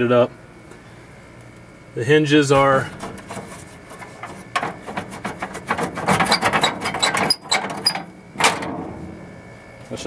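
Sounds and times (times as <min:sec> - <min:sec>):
metal hinges clicking and rattling: 0:02.9 - 0:08.8.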